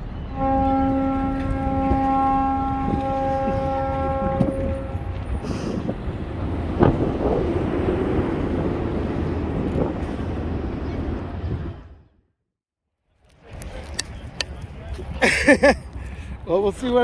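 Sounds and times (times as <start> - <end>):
ship's horn blast: 0.2 - 5.4.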